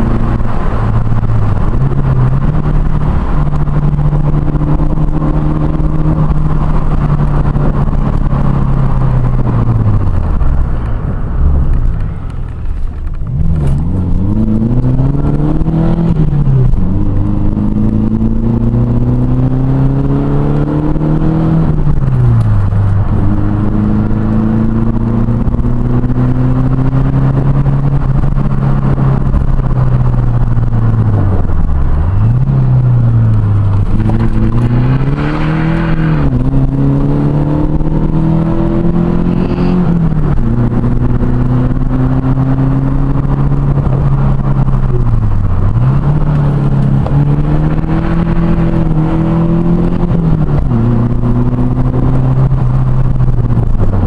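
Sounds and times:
car engine revving through gears: 0.0s - 54.0s.

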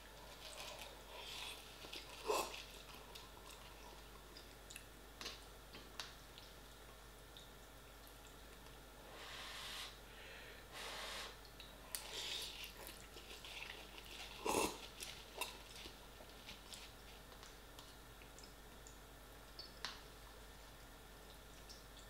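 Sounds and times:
person chewing and slurping noodles: 0.1s - 4.1s, 11.9s - 17.2s
quiet breaths: 9.0s - 12.8s.

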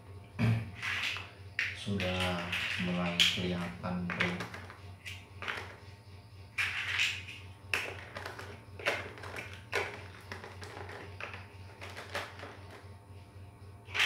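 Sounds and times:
plastic blocks snapping together: 6.6s - 12.8s.

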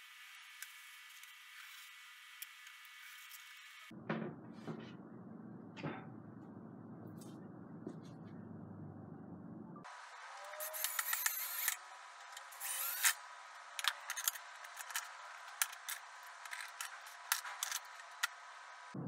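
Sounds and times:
cordless drill driving screws: 10.6s - 11.8s, 12.6s - 13.2s.

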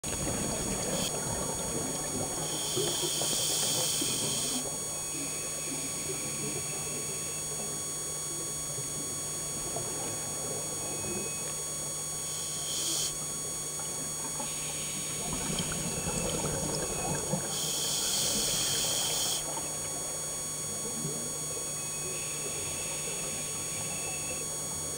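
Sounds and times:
exhaled bubbles rumbling: 0.0s - 4.8s, 13.8s - 18.4s
camera electrical hum and whine: 0.0s - 24.9s
regulator inhalation hiss: 2.4s - 4.7s, 12.3s - 13.2s, 17.4s - 19.4s.

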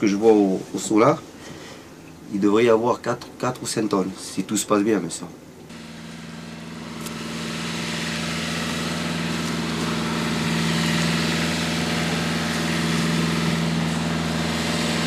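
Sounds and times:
boat engine running: 5.7s - 15.0s.

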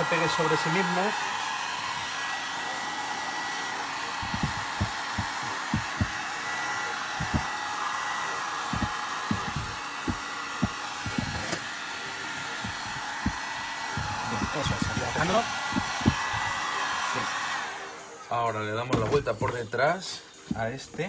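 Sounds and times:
soft low thumps: 4.2s - 6.2s, 7.2s - 7.5s, 8.7s - 11.4s, 12.6s - 16.6s
heat gun blowing: 4.2s - 17.1s.

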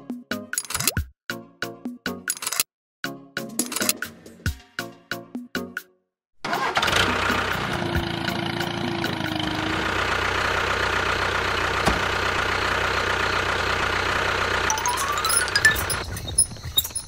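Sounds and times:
engine idling: 6.5s - 16.1s.

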